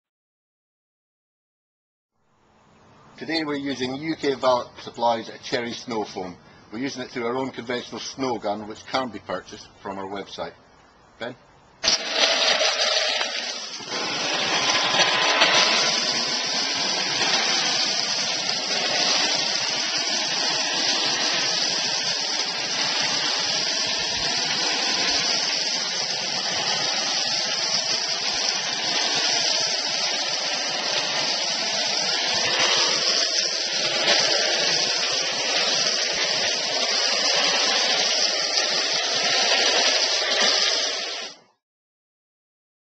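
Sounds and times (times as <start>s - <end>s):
pressure washer spraying foam: 11.8s - 41.6s.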